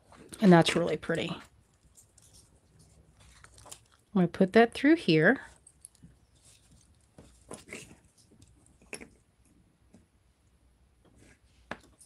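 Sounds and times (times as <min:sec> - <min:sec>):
beads clicking and rustling: 0:01.2 - 0:04.2, 0:05.4 - 0:08.8.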